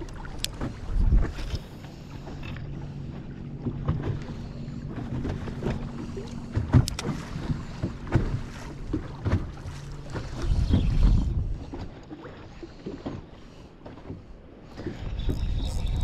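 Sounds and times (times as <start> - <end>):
wind on microphone: 0.0 - 1.8, 4.9 - 12.0, 14.8 - 16.0
steady low hum: 0.0 - 16.0
water slapping boat hull: 0.0 - 16.0.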